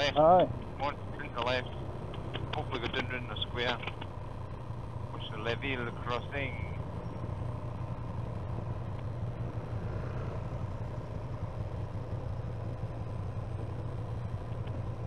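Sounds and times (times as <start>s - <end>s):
motorcycle engine rumbling: 0.0s - 15.0s.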